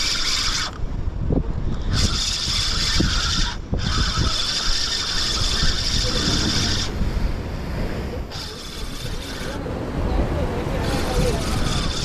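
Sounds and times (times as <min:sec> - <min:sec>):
fishing reel whirring: 0:00.0 - 0:00.8, 0:01.7 - 0:07.0, 0:08.3 - 0:09.6, 0:10.8 - 0:12.0
wind buffeting microphone: 0:00.0 - 0:12.0.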